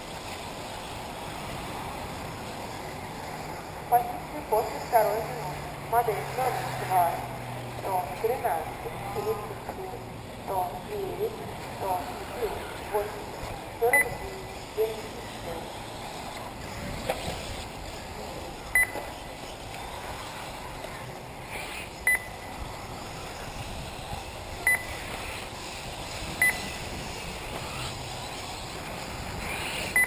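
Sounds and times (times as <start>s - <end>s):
steady outdoor hiss: 0.0s - 30.0s
high-pitched electronic beeps: 13.8s - 14.3s, 18.7s - 19.1s, 22.0s - 22.5s, 24.6s - 25.0s, 26.4s - 26.8s.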